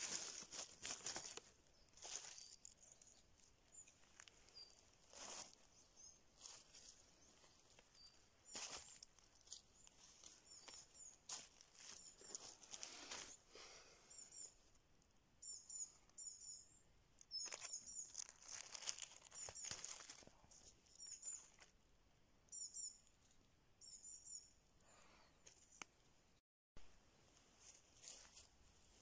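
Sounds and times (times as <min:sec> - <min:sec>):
dry leaves rustling: 0:00.0 - 0:13.4, 0:17.4 - 0:21.7, 0:27.6 - 0:29.0.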